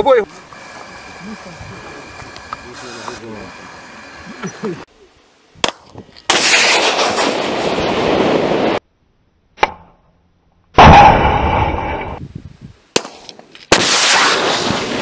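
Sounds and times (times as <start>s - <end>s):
missile launch blast: 13.7s - 15.0s.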